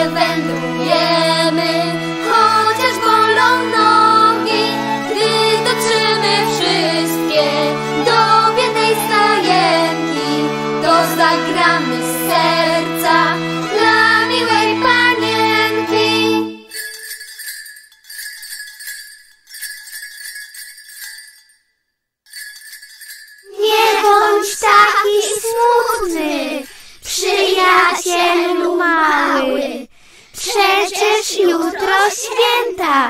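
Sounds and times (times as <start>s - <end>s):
children's christmas song music: 0.0s - 21.6s, 22.3s - 33.0s
jingle bells shaken: 14.1s - 28.5s.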